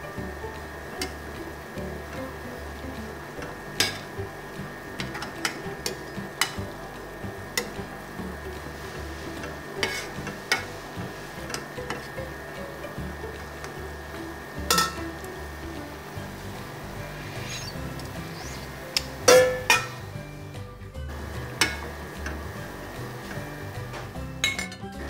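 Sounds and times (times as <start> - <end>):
background music: 0.0 - 25.0
boiling water: 0.0 - 25.0
metal spoon clinking on pot: 14.7 - 15.0, 19.3 - 20.0, 24.4 - 24.8
spoon clatter: 14.7 - 15.0.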